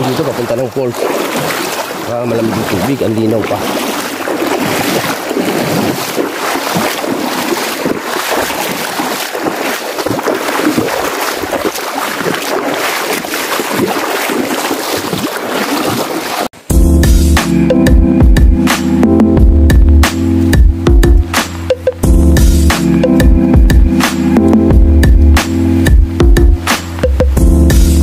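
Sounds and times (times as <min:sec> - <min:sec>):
river water rushing: 0:00.0 - 0:16.6
small water splashes: 0:00.0 - 0:16.6.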